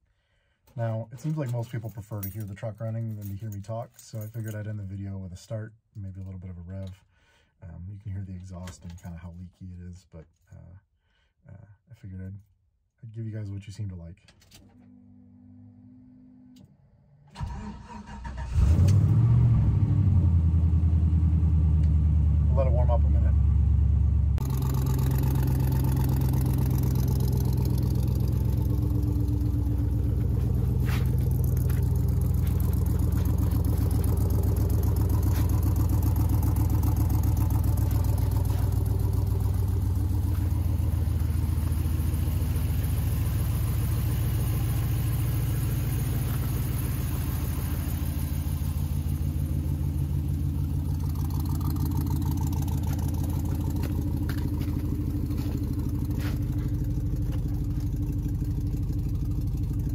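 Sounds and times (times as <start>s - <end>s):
engine idling through leaky exhaust: 24.4s - 59.9s.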